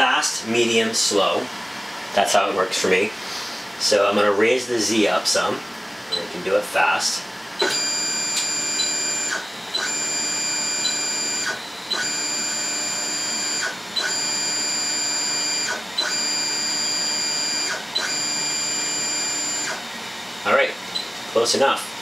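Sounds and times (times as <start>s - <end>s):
stepper motors whining: 7.6s - 19.8s.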